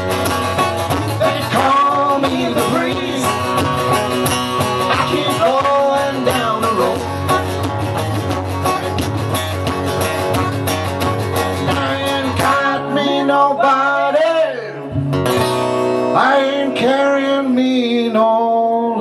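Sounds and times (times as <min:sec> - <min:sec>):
bass guitar: 0:00.0 - 0:19.0
strummed acoustic guitars: 0:00.0 - 0:19.0
man singing: 0:00.9 - 0:07.6, 0:11.4 - 0:15.0, 0:16.0 - 0:19.0.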